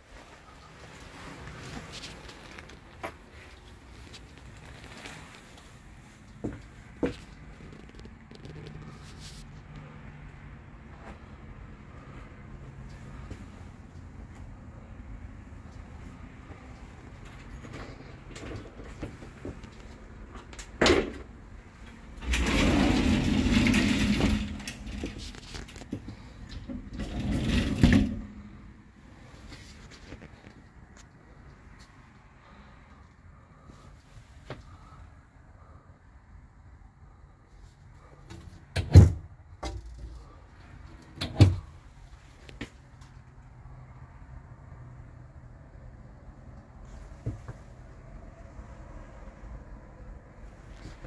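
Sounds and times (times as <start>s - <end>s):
glass shower door sliding: 22.0s - 28.4s.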